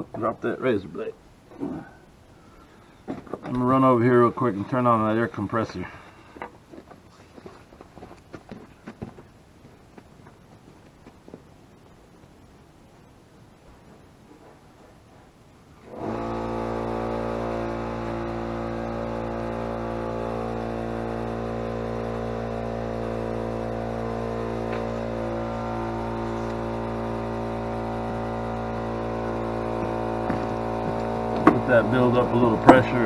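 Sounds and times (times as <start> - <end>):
air compressor running: 15.8 - 33.0.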